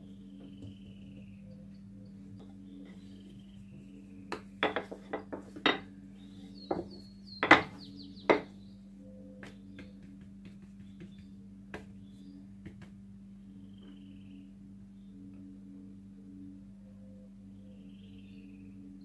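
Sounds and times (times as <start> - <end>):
utensils knocking on countertop: 4.6 - 5.9.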